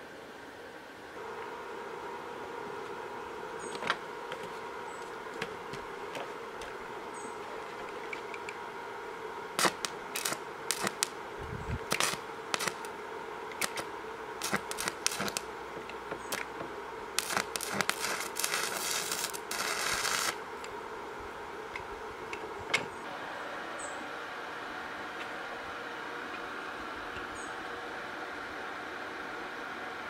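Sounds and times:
welding arc snapping and crackling: 0:09.6 - 0:11.2, 0:11.8 - 0:15.5, 0:16.2 - 0:20.7.

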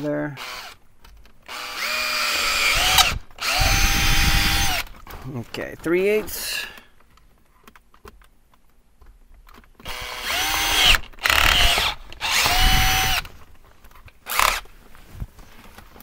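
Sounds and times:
cordless drill motor whine: 0:01.5 - 0:04.9, 0:09.8 - 0:13.3.

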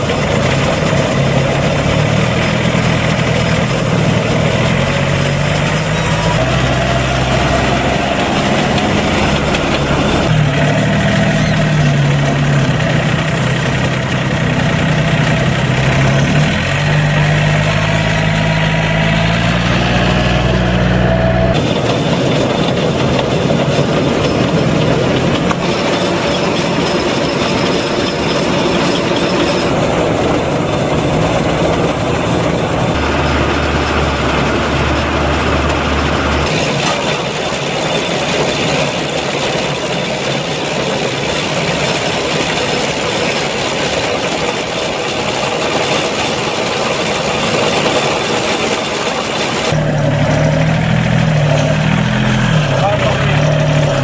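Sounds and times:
baler-wrapper running: 0:00.0 - 0:19.6, 0:21.5 - 0:49.8
wheel loader engine running: 0:00.0 - 0:54.0
low hum: 0:00.6 - 0:36.5.

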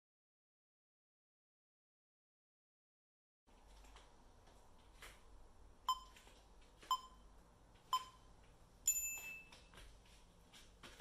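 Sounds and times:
short timer beeps: 0:05.9 - 0:06.2, 0:06.9 - 0:07.2, 0:07.9 - 0:08.2
long high timer beep: 0:08.0 - 0:08.2.

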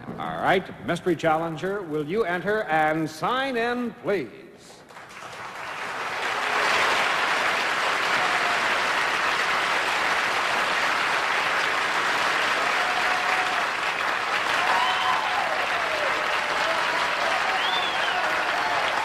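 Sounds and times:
studio audience applauding: 0:04.9 - 0:19.0.

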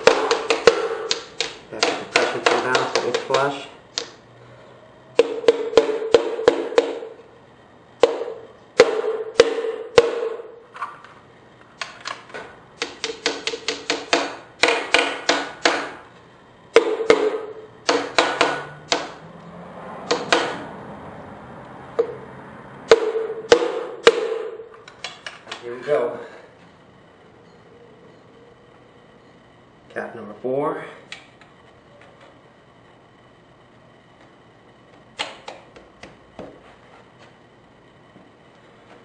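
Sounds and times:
hammer tapping on metal: 0:00.0 - 0:04.1, 0:05.2 - 0:07.1, 0:08.0 - 0:10.4, 0:12.8 - 0:16.0, 0:16.7 - 0:19.2, 0:20.1 - 0:20.6, 0:22.9 - 0:25.4.

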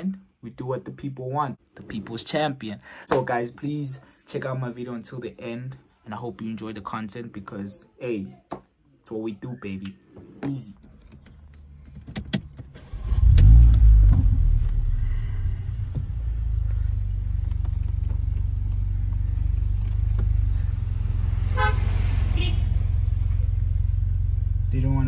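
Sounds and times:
car engine running: 0:12.9 - 0:21.8
car horn honks: 0:21.6 - 0:22.8.

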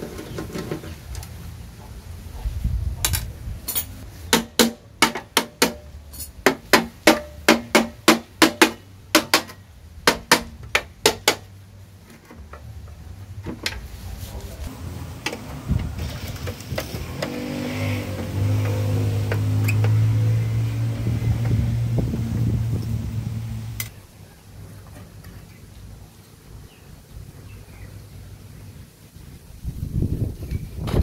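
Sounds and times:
low rumble: 0:20.2 - 0:24.4.

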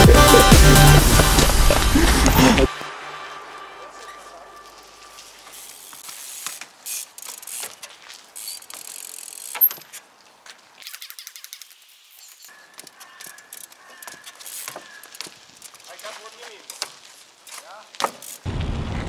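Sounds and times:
freewheel hub ratchet clicking: 0:08.4 - 0:09.8
bike tyres knocking on wood: 0:13.9 - 0:15.8, 0:16.4 - 0:18.4.

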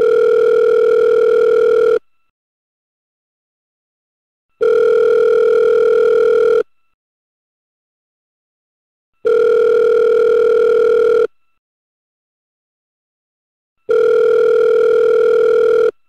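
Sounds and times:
telephone ringing: 0:00.0 - 0:02.0, 0:04.6 - 0:06.6, 0:09.2 - 0:11.3, 0:13.9 - 0:16.0.

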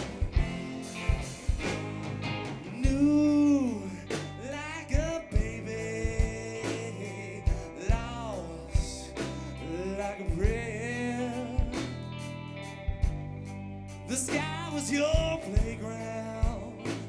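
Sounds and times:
live rock band playing: 0:00.0 - 0:17.0
person singing wordless notes: 0:02.7 - 0:12.0.

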